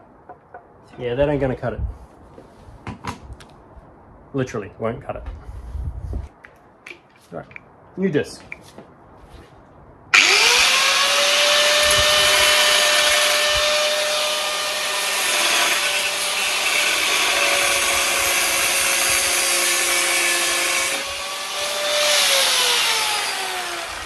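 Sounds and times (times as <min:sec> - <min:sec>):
angle grinder cutting metal: 0:10.1 - 0:24.0.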